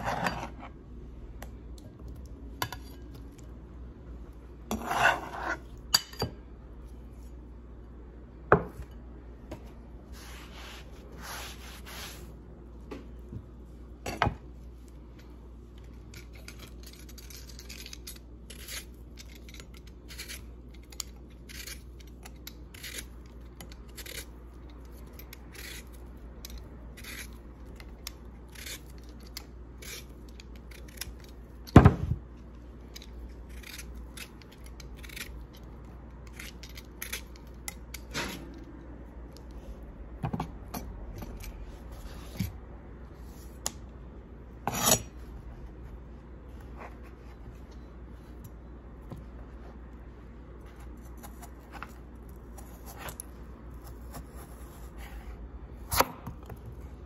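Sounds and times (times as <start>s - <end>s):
peeler scraping potato skin: 15.8s - 31.8s, 32.8s - 38.6s, 44.7s - 45.2s.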